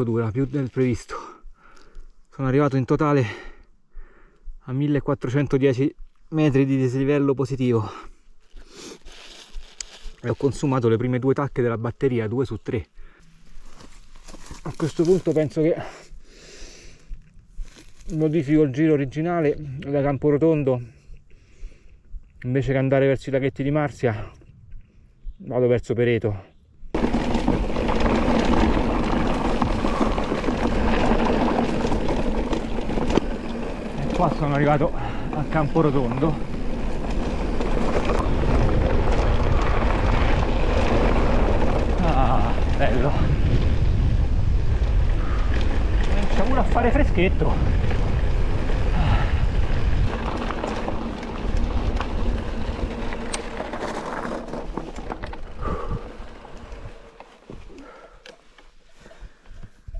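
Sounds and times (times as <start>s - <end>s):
bike rattling: 8.5s - 10.6s, 13.0s - 16.0s, 26.9s - 59.9s
tyre rumble: 26.9s - 58.2s
wind on microphone: 36.3s - 53.6s.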